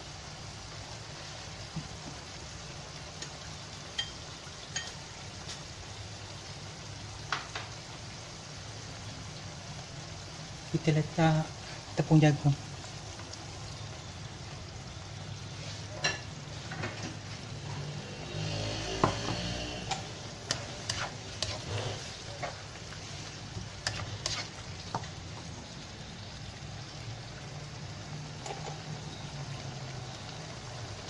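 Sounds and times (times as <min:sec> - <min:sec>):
utensil clinking against wok: 0:03.9 - 0:05.0
gravy bubbling: 0:17.5 - 0:31.0.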